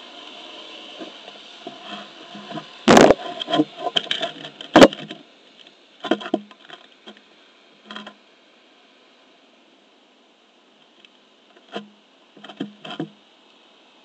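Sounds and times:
hand adjusting camera clicks and scrapes: 0:01.7 - 0:05.2.

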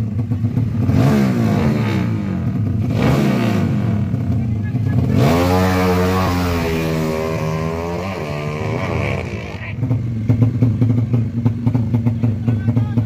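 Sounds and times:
motorcycle idling with popping: 0:00.0 - 0:00.9, 0:09.0 - 0:13.0
motorcycles at full throttle: 0:00.0 - 0:13.0.

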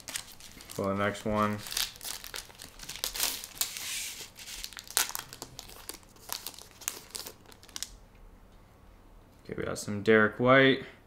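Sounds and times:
card pack wrappers tearing: 0:00.0 - 0:08.0
dense rustling of wrappers: 0:00.0 - 0:08.0.

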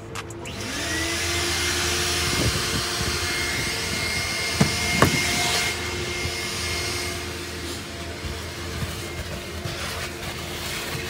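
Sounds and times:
vacuum motor whine: 0:00.4 - 0:11.0
sharp knocks: 0:04.6 - 0:05.4.

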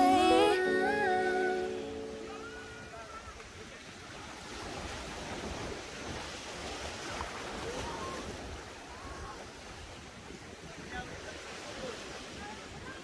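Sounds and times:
sea waves washing onto beach: 0:00.0 - 0:13.0
wind rumbling on microphone: 0:02.8 - 0:13.0.

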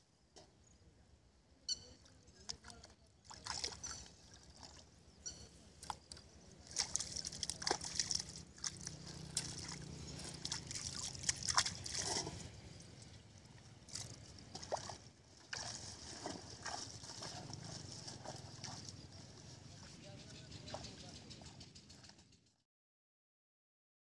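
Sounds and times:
water sloshing and splashing: 0:02.0 - 0:20.0.

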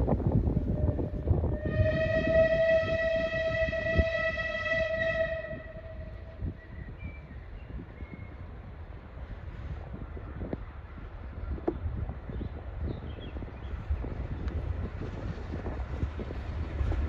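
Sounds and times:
steam locomotive whistle: 0:00.6 - 0:06.7.

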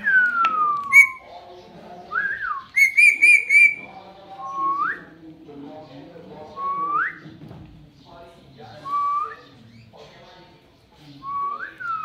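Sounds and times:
parakeet whistling and calling: 0:00.0 - 0:01.2, 0:02.2 - 0:03.9.

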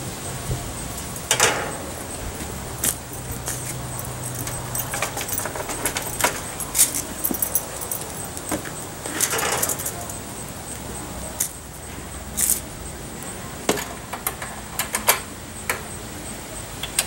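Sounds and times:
metal rattling: 0:00.5 - 0:10.3
metal grill parts clinking: 0:00.9 - 0:10.3.

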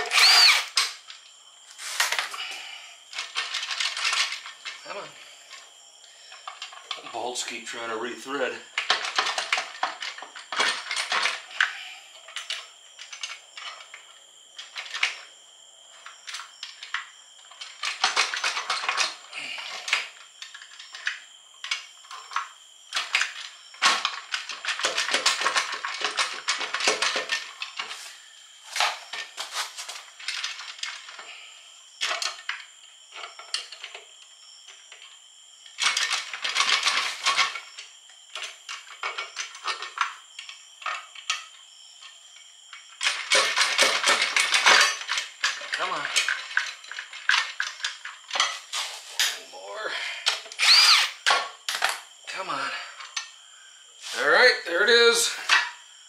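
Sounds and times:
metallic clinks and knocks: 0:42.8 - 0:48.6.

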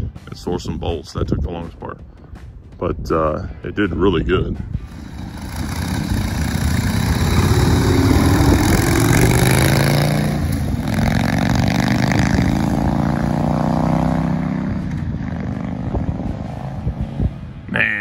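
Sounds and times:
motorcycle accelerating: 0:04.8 - 0:17.8.

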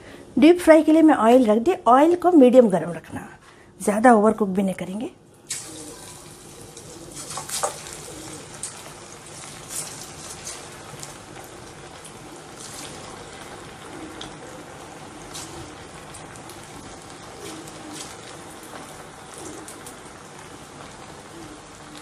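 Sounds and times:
food deep-frying in oil: 0:05.4 - 0:22.0
oil popping and crackling: 0:05.4 - 0:22.0.

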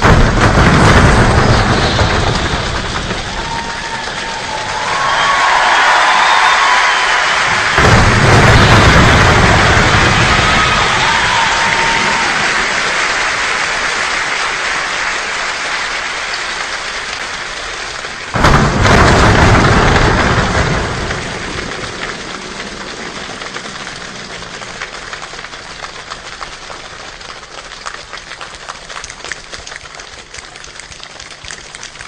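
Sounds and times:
performers jumping on stage: 0:00.0 - 0:30.4
scattered claps: 0:00.0 - 0:32.0
hands rubbing and clapping: 0:22.3 - 0:32.0.

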